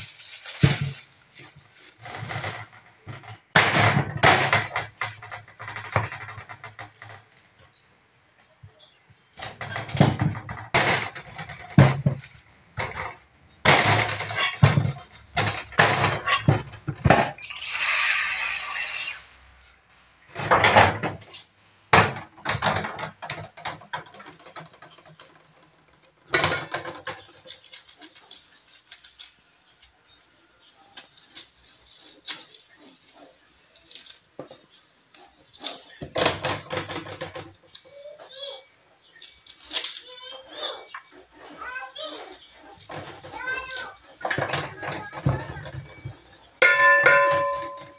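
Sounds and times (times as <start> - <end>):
brief rushing hiss: 17.4 - 19.8
spoon clattering in metal pot: 46.6 - 47.9.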